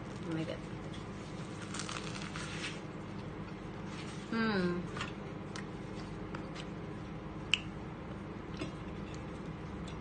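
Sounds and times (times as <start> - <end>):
steady low hum: 0.0 - 10.0
chewing food: 7.4 - 10.0.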